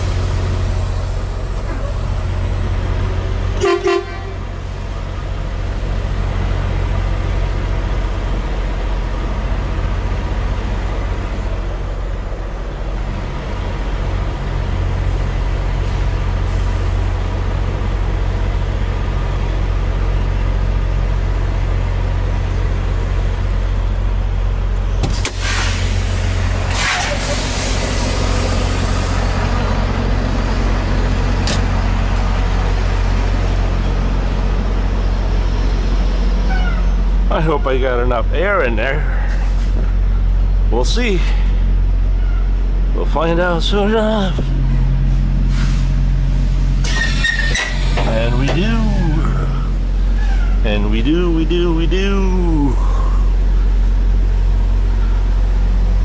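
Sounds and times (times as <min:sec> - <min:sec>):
diesel truck engine idling: 0:00.0 - 0:56.0
short hissing or banging bursts: 0:25.1 - 0:28.6, 0:46.8 - 0:48.1.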